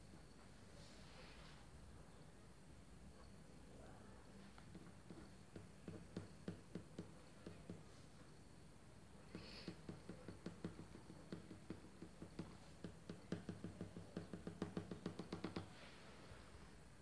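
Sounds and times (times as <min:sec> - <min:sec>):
pencil tapping on paper: 0:04.6 - 0:08.0, 0:09.2 - 0:15.7.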